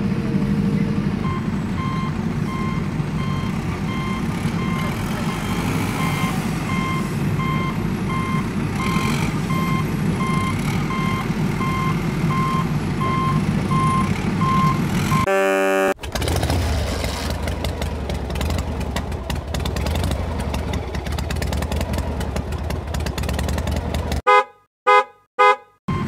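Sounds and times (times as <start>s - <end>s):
engine low rumble: 0.0s - 24.2s
truck reversing alarm beeping: 0.8s - 16.0s.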